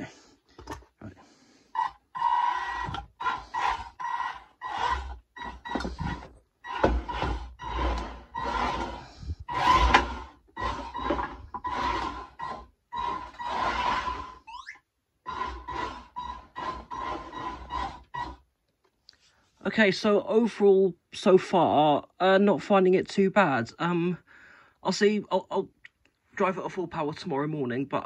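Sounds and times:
electric drive motors whining: 1.7 - 18.4.

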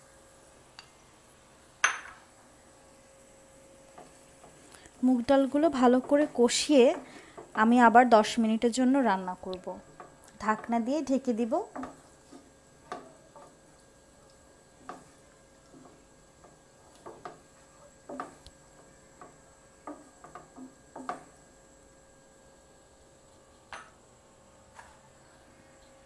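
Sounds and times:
faint steady hum: 0.0 - 26.0
wooden spoon scraping a pan: 9.9 - 21.3.

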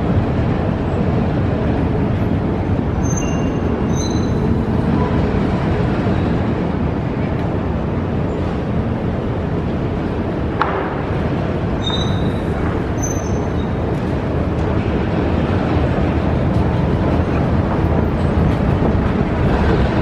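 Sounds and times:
escalator rumbling: 0.0 - 20.0
faint high squeaks: 3.0 - 4.4, 11.8 - 13.8.

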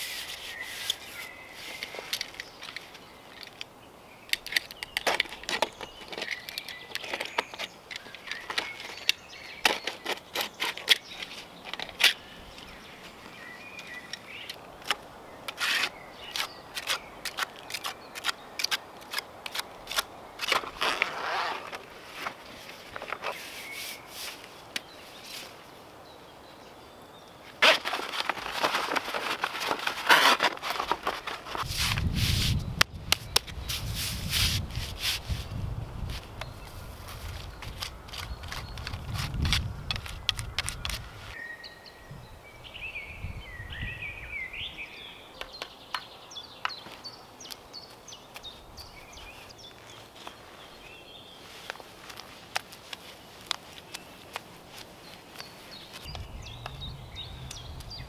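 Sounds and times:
hands handling materials clicks: 4.3 - 12.7, 51.6 - 56.8
membrane sheet rustling: 20.5 - 25.6, 27.6 - 32.7.

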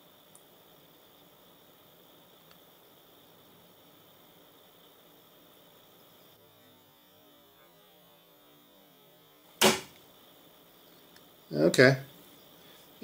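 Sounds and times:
faint steady hum: 0.0 - 13.0
autoinjector spring snap: 9.6 - 10.0.

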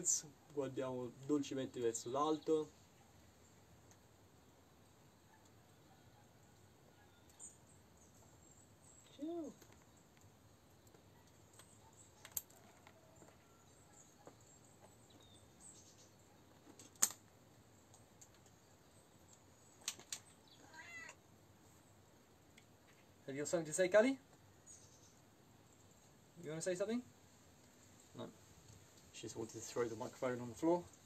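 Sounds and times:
cat meowing: 20.6 - 21.2.

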